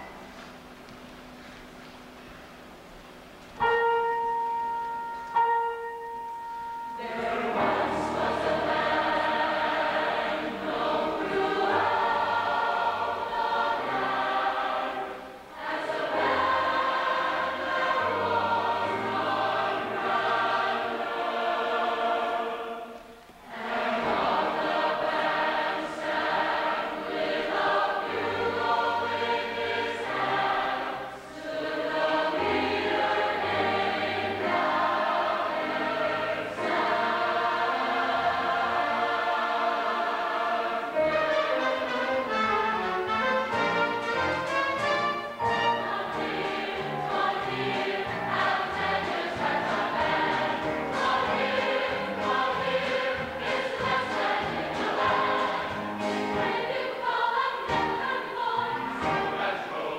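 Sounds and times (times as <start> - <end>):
choir singing: 3.6 - 59.9
held instrument notes: 23.5 - 59.7.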